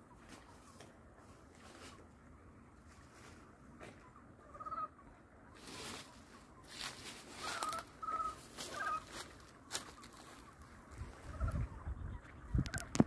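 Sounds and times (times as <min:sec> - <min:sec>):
faint outdoor hiss: 0:00.0 - 0:13.0
bird calling: 0:03.8 - 0:13.0
rustling: 0:05.6 - 0:11.4.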